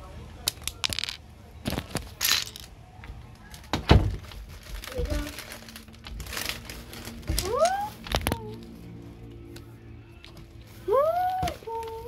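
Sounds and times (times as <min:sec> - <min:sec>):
plastic pieces clicking: 0:00.4 - 0:02.7
plastic bags crinkling: 0:03.4 - 0:08.8.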